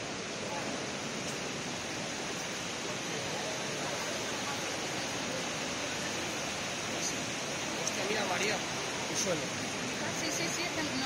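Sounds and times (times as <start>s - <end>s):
water rushing: 0.0s - 11.0s.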